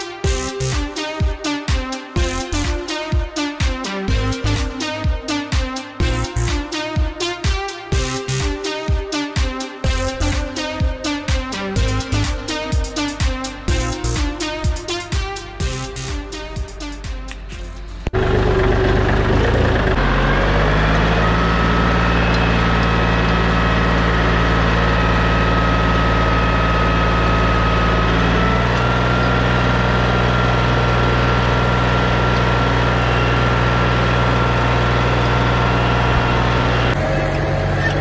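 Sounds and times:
tractor diesel engine running: 9.8s - 38.0s.

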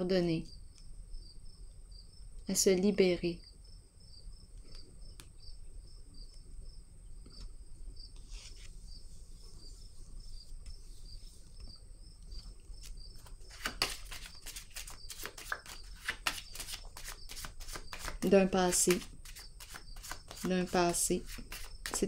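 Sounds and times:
cricket chirping: 0.2s - 22.0s
cards being shuffled: 12.8s - 22.0s.

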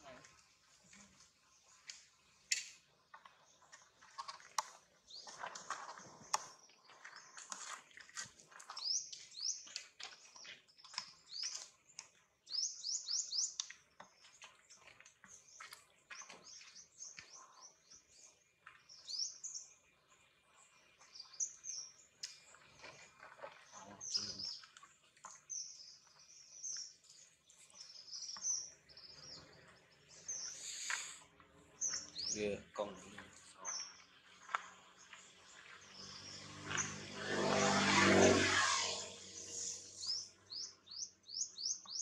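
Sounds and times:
birds chirping: 8.7s - 42.0s.

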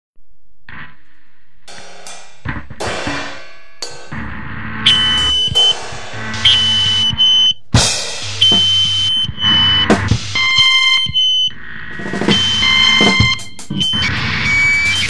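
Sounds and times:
drums and guitar playing: 1.7s - 15.0s
shrill high tone: 3.4s - 7.5s.

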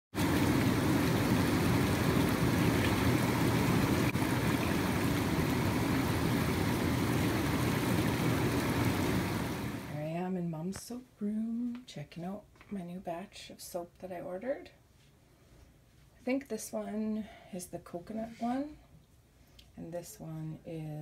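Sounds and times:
foaming water churning: 0.1s - 10.0s.

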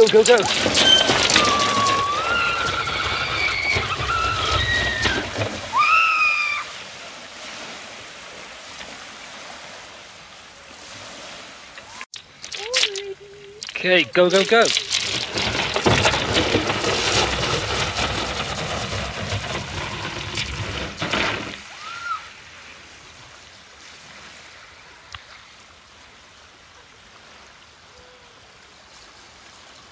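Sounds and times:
kayak hull scraping over pebbles: 0.0s - 6.5s, 12.1s - 21.8s.

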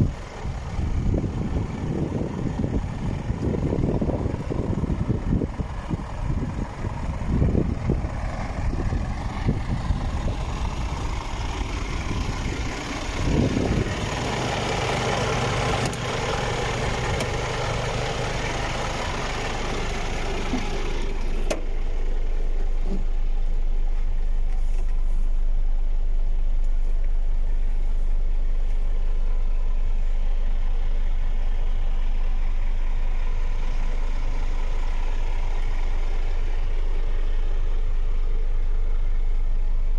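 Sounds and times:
wind buffeting microphone: 0.0s - 11.4s, 12.0s - 14.1s
diesel truck engine idling: 0.0s - 39.9s.

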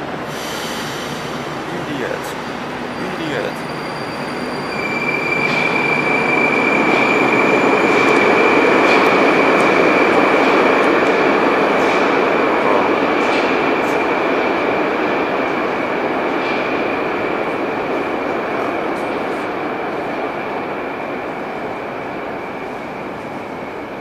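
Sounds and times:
train wheels rumbling: 0.0s - 23.9s
high-pitched squeal: 2.9s - 8.6s.

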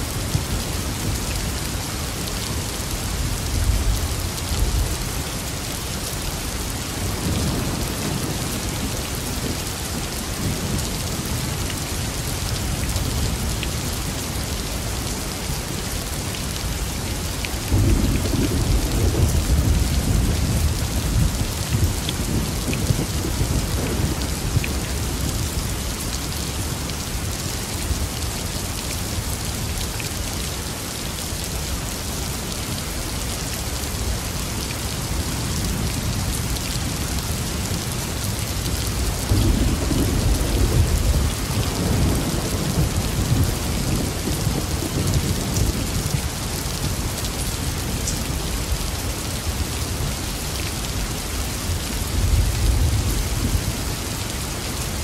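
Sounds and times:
thunder rumbling: 39.0s - 46.1s.

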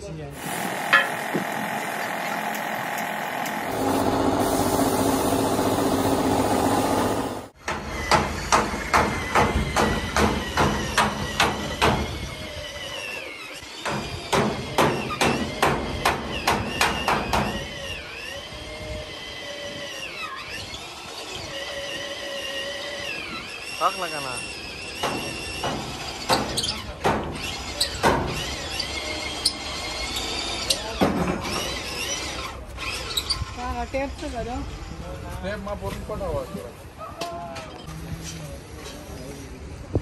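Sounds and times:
power sander running: 0.4s - 7.6s.

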